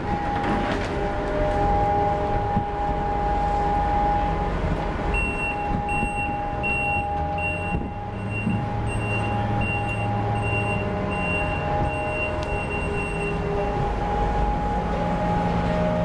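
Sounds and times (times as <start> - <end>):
crane machinery whining: 0.0 - 16.0
low engine rumble: 0.0 - 16.0
warning beeper: 5.1 - 14.7.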